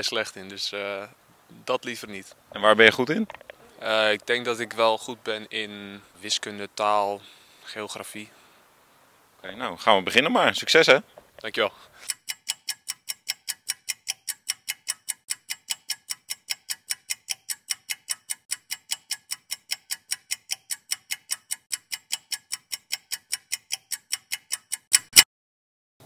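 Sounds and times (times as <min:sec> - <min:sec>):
fast ticking timer: 0:12.0 - 0:25.3.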